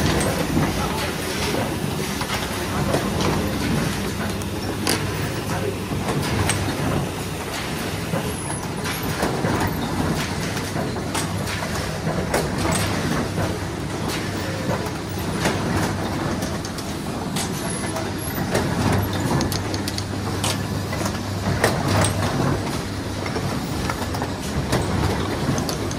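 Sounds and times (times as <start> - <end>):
machine clicks and knocks: 0.0 - 25.9
printing machine hum: 0.0 - 25.9.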